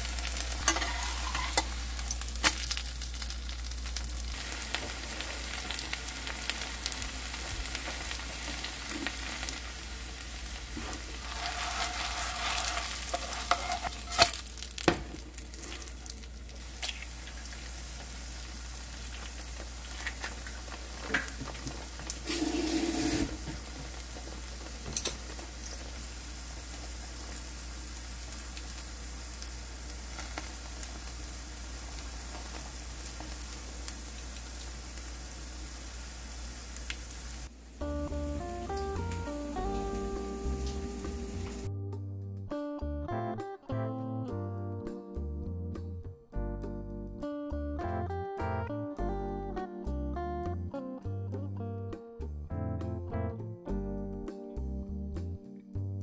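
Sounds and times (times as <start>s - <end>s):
pancake sizzling in oil: 0.0s - 41.7s.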